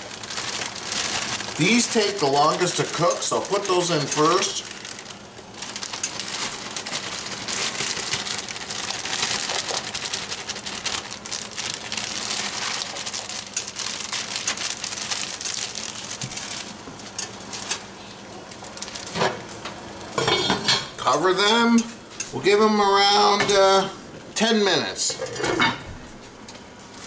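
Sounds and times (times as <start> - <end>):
plastic bag crinkling: 0.0 - 20.1.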